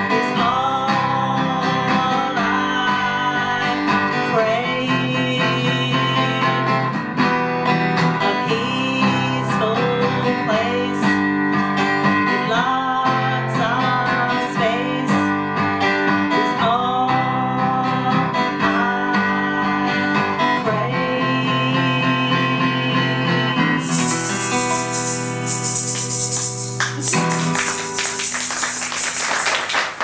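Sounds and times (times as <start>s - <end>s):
woman singing: 0.0s - 6.6s, 8.2s - 11.3s, 12.2s - 15.4s, 16.3s - 23.8s
acoustic guitar strumming: 0.0s - 29.2s
shaken percussion rattle: 23.8s - 30.0s.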